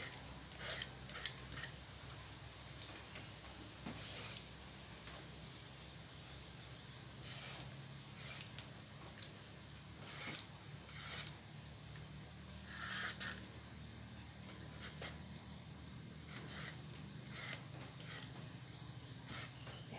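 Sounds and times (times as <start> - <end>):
peeler scraping fruit skin: 0.0 - 2.2, 7.2 - 9.3, 10.0 - 11.4, 12.6 - 13.6, 14.5 - 15.2, 16.2 - 18.4, 19.2 - 19.8.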